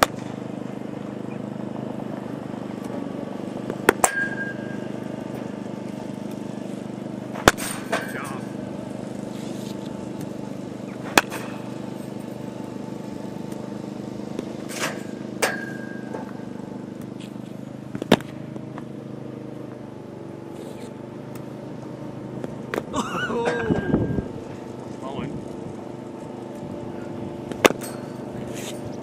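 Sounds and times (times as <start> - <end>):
mechanical hum: 0.0 - 29.0
cricket bat striking ball: 3.8 - 4.7.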